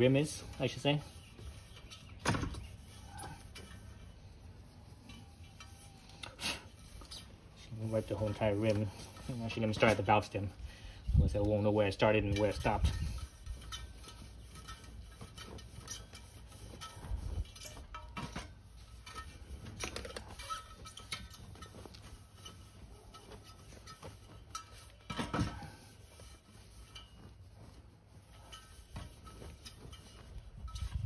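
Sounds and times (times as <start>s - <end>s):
cloth rag rubbing metal rim: 0.0s - 10.6s, 11.4s - 31.0s.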